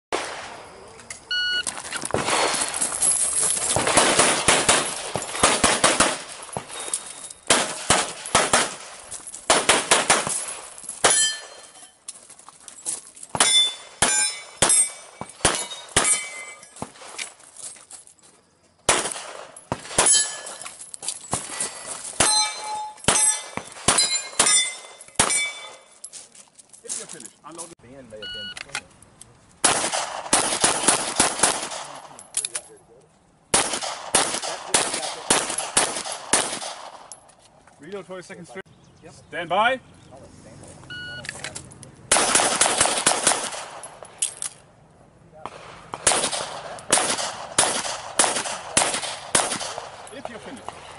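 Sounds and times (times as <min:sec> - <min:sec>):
pistol shots: 0:02.1 - 0:02.8, 0:03.6 - 0:06.7, 0:07.5 - 0:11.6, 0:13.4 - 0:17.2, 0:18.9 - 0:20.6, 0:22.2 - 0:25.8, 0:29.6 - 0:32.2, 0:33.5 - 0:37.2, 0:42.1 - 0:44.1, 0:45.5 - 0:50.1
steel targets ringing: 0:10.2 - 0:12.0, 0:13.4 - 0:16.8, 0:20.0 - 0:20.8, 0:22.2 - 0:26.0.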